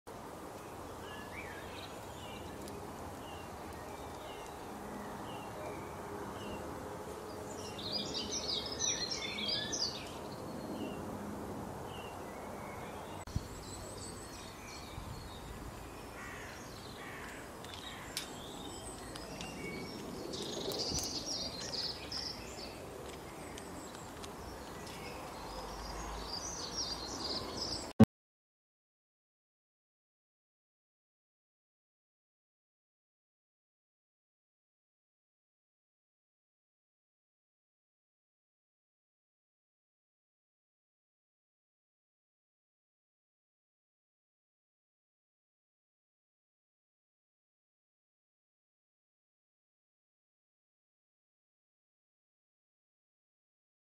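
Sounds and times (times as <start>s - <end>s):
small birds calling and singing: 0.5s - 11.1s, 11.8s - 28.0s.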